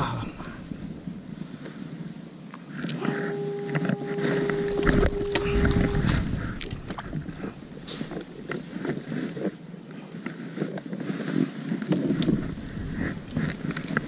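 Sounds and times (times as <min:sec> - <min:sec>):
water lapping against kayak hull: 0:04.1 - 0:09.5.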